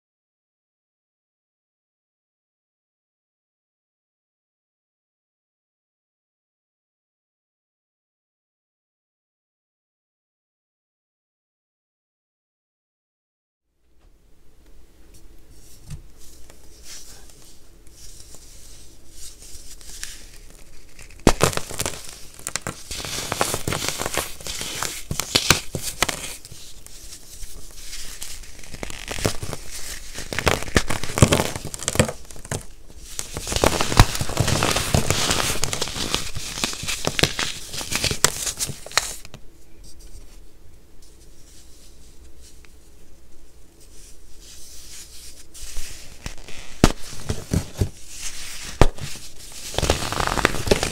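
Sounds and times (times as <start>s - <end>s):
gritty crunching and crackling: 19.3s - 39.3s, 45.6s - 50.9s.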